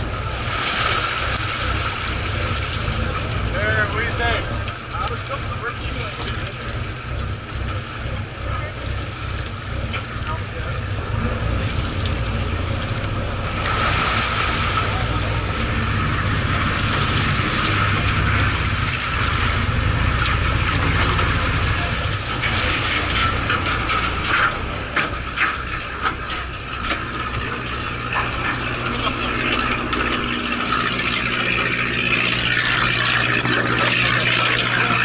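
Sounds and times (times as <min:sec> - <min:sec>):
boat engine droning: 0:00.0 - 0:35.0
water rushing into tank: 0:00.0 - 0:35.0
sharp clicks and knocks: 0:20.2 - 0:31.3.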